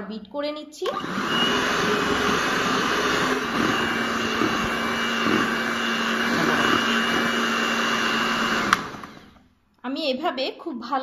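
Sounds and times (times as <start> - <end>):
electric hand mixer running: 0.9 - 9.4.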